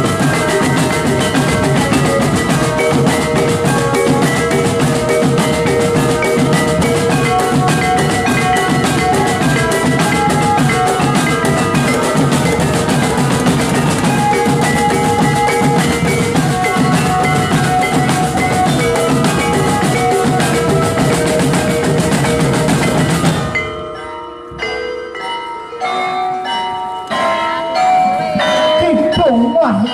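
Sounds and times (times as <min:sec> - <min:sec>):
snare and tenor drums: 0:00.0 - 0:23.5
bell melody: 0:00.0 - 0:29.9.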